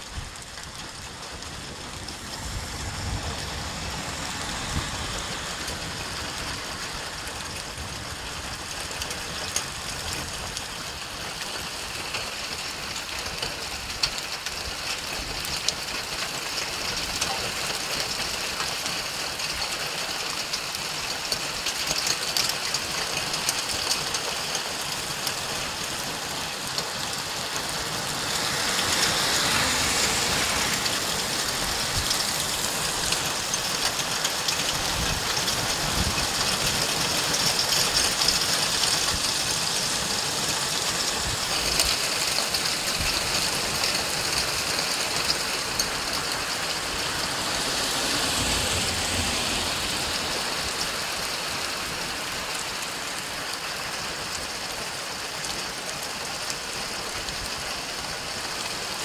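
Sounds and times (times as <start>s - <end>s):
gusts of wind: 0.0s - 9.1s, 25.5s - 51.3s
heavy rain pouring: 0.0s - 59.0s.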